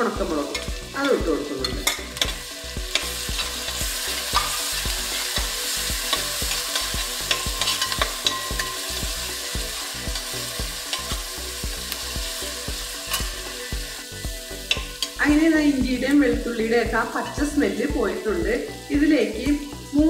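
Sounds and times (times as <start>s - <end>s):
food sizzling in hot oil: 0.0s - 20.0s
spatula scraping metal pan: 0.5s - 11.4s.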